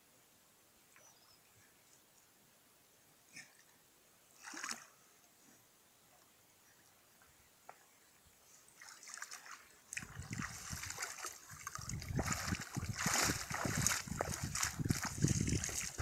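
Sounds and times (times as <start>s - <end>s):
water splashing and sloshing: 4.3s - 5.0s, 8.7s - 16.0s.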